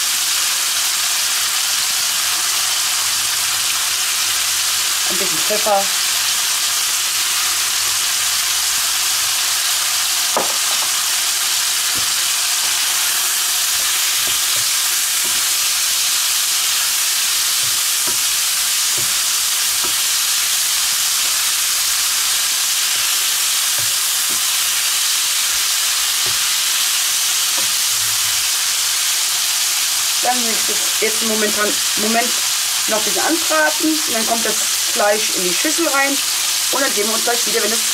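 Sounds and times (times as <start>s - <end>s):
chicken sizzling in hot oil: 0.0s - 37.9s
wooden spatula knocking pan: 10.3s - 11.1s, 11.8s - 12.3s, 17.5s - 20.2s, 23.7s - 24.7s, 25.5s - 26.6s.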